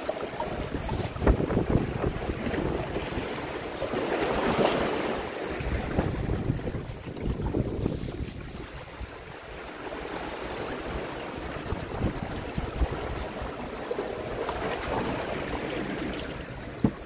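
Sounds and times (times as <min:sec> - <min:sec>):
waves splashing over rocks: 0:00.0 - 0:17.0
wind thumps on microphone: 0:00.6 - 0:03.3, 0:05.6 - 0:09.0, 0:11.6 - 0:13.2, 0:16.6 - 0:17.0.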